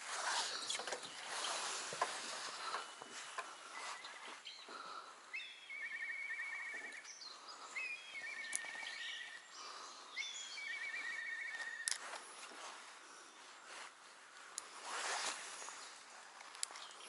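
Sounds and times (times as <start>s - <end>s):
songbird singing trills: 0.6s - 12.1s.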